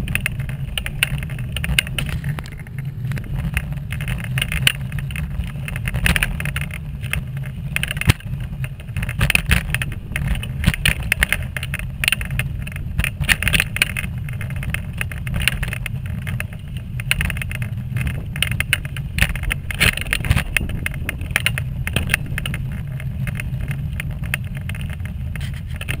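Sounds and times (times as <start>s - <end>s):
crackles and clicks: 0.0s - 26.0s
wheelchair wheels rumbling: 0.0s - 26.0s.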